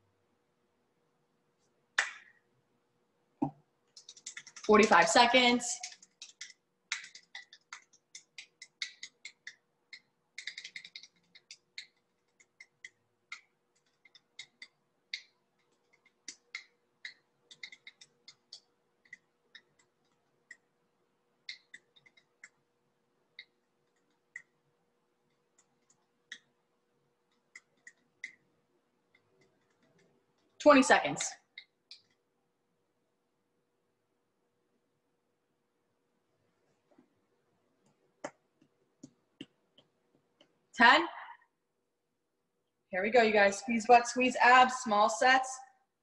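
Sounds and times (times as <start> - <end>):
faint steady hum: 0.0 - 46.0
faint irregular clicking: 5.8 - 20.7, 21.4 - 22.6, 23.3 - 26.6, 27.2 - 30.7, 31.4 - 32.2.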